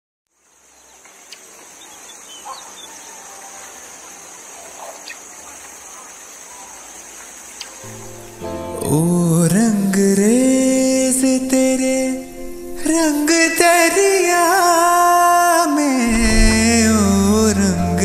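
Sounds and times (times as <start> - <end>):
steady high hiss: 0.3 - 18.0
short bird calls: 1.2 - 6.9
low music drone: 16.1 - 18.0.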